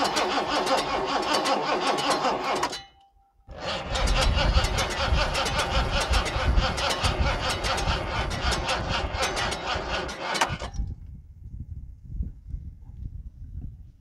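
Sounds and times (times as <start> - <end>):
engine cranking on starter: 0.0 - 2.8, 3.5 - 10.9.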